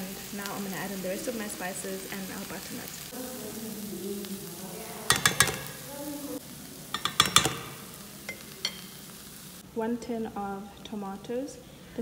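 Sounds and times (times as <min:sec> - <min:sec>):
onions sizzling in pan: 0:00.0 - 0:12.0
teaspoon clinking on metal pan: 0:05.1 - 0:05.8, 0:06.9 - 0:09.0.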